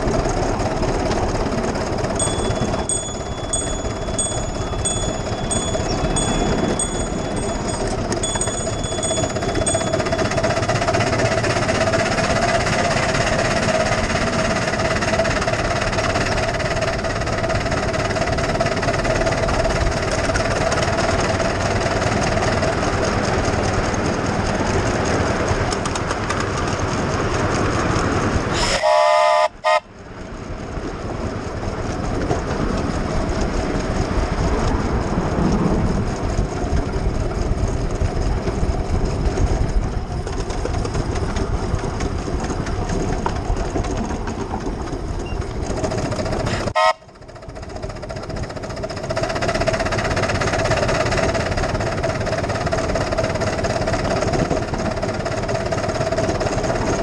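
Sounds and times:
miniature train rattling on track: 0.0s - 57.0s
steam whistle blast: 28.6s - 29.9s, 46.7s - 47.1s.

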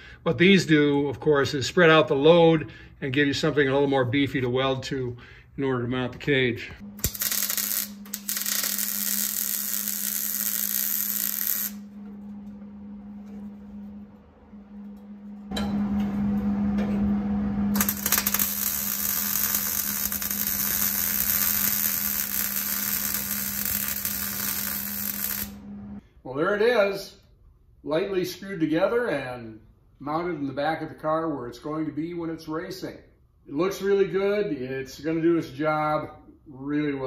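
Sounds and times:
steady low hum: 0.0s - 26.2s
welding arc crackling: 6.8s - 11.9s, 17.8s - 25.7s.

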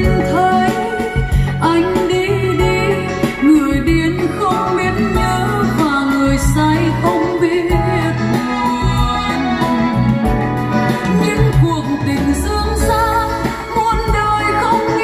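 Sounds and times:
song with solo singer over speakers: 0.0s - 15.0s.

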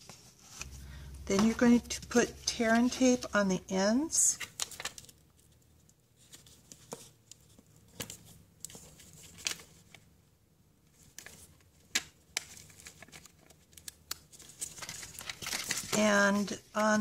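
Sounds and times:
plastic sheet crinkling: 12.4s - 16.8s.

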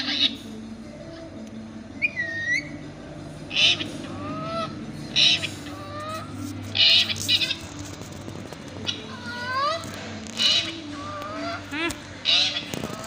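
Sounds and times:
parakeet screeching: 0.0s - 0.4s, 3.5s - 7.8s, 8.9s - 13.0s
parakeet whistling: 2.0s - 2.8s, 3.5s - 7.6s.

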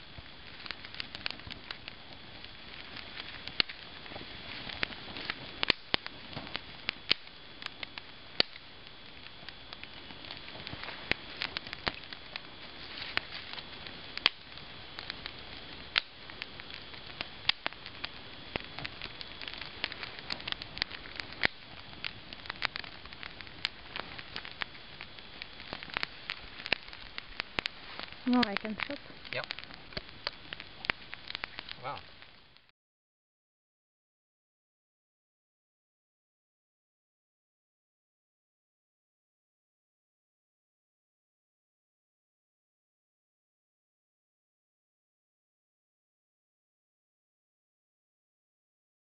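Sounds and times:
fire hissing and crackling: 0.0s - 32.7s.

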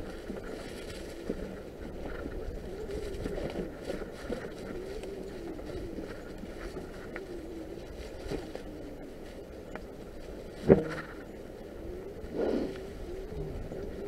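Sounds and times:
wind rumble on microphone: 0.0s - 14.0s.

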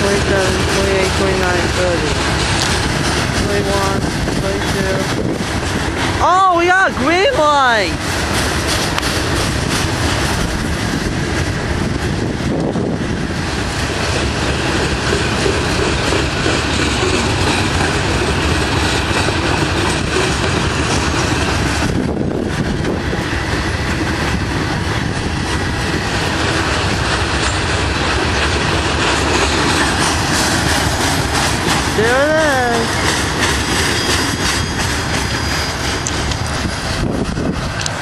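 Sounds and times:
train wheels rolling on rails: 0.0s - 38.0s.

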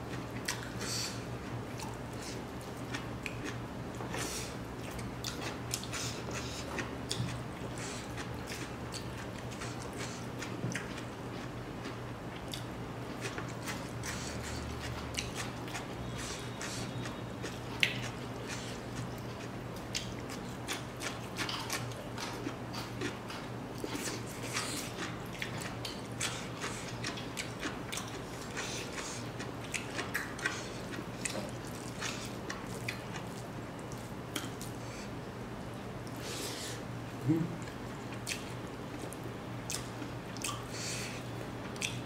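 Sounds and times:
person chewing: 0.1s - 35.2s, 36.0s - 42.0s.

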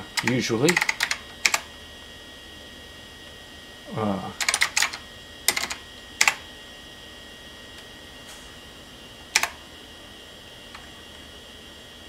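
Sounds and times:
keyboard typing: 0.0s - 1.7s, 4.4s - 6.4s, 9.3s - 9.6s.

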